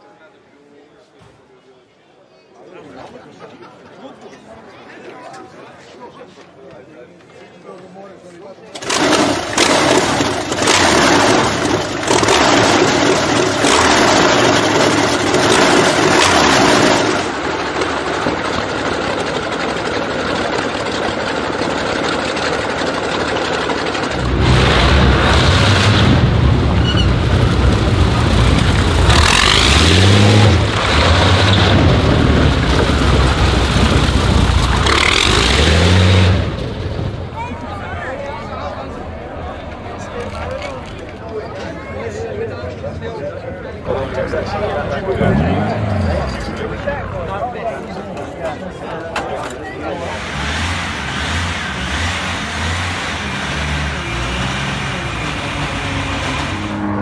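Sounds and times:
aircraft engine revving: 8.8 - 38.5, 49.8 - 57.0.

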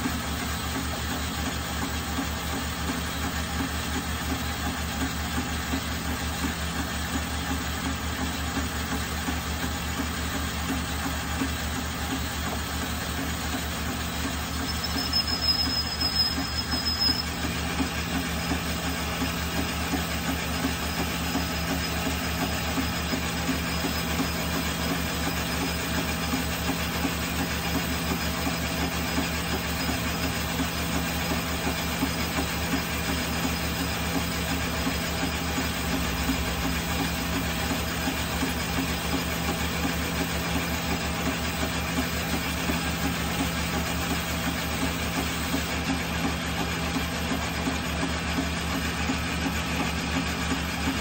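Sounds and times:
metal lathe running: 0.0 - 51.0
thin high whine: 14.6 - 17.4.

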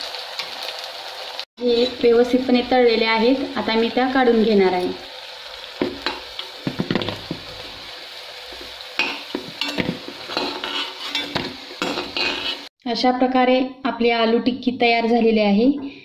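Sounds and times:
oil sizzling: 0.0 - 12.8
metal spoon scraping pan: 9.0 - 12.7.

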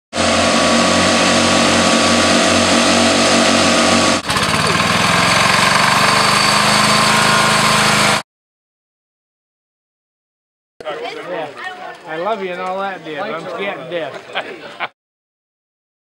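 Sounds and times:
garden tractor engine running: 0.2 - 8.2
riding mower engines racing past: 0.2 - 8.2.

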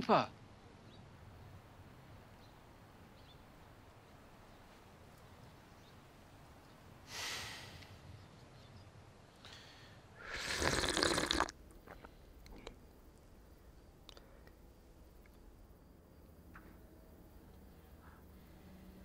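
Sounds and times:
person breathing out heavily: 7.1 - 7.8.

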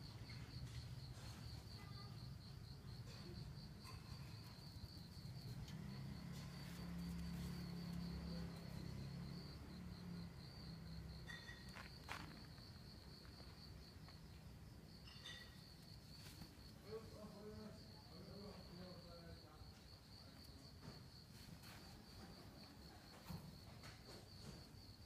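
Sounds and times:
high-pitched insect trill: 0.0 - 19.5.

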